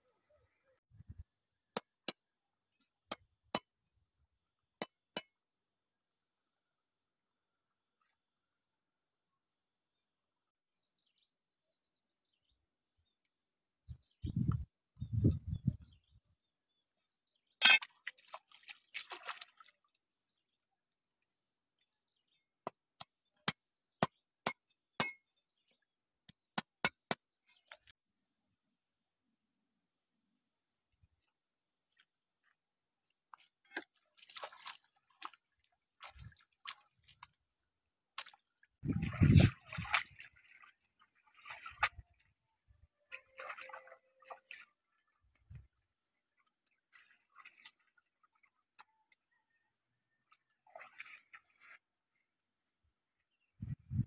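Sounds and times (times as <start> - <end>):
water splashing and scraping: 17.4 - 20.6, 27.1 - 27.9, 31.2 - 49.3, 50.2 - 52.8.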